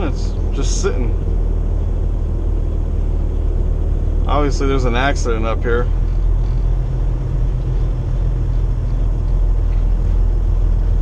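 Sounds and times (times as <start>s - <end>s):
diesel truck engine drone: 0.0s - 11.0s.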